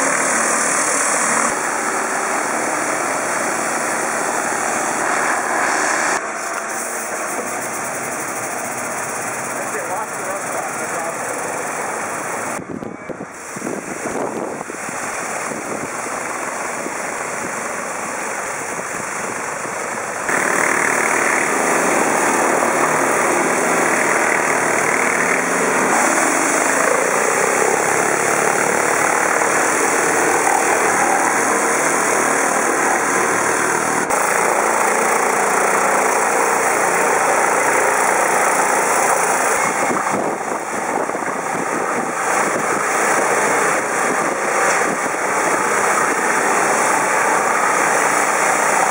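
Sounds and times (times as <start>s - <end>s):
high-pressure water spray hissing: 0.0s - 12.6s, 14.7s - 48.9s
engine running: 0.0s - 48.9s.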